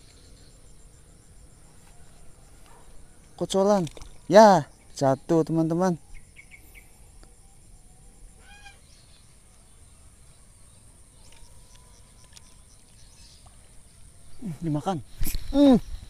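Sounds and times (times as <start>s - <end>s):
distant bird call: 8.3s - 14.8s.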